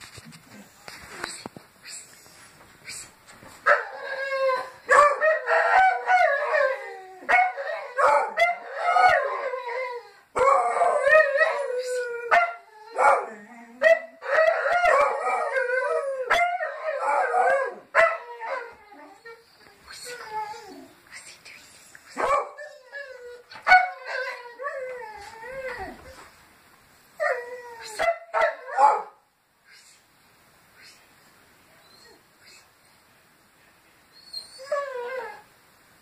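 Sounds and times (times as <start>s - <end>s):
dogs howling: 3.7s - 19.4s.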